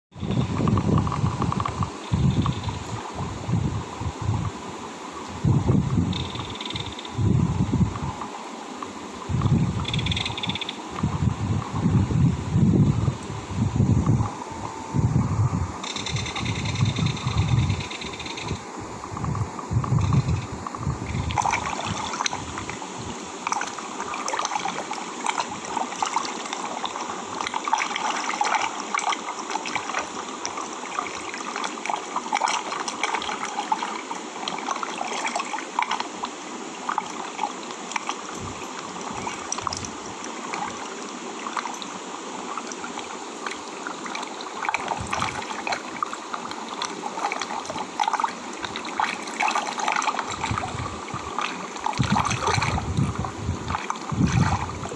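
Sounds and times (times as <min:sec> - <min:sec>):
seawater splashing over rocks: 0:19.2 - 0:54.9.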